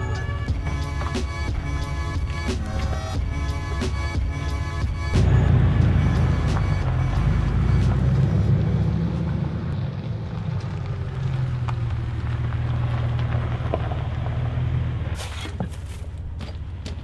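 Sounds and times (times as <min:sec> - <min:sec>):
car engine running at low revs: 0:00.0 - 0:17.0.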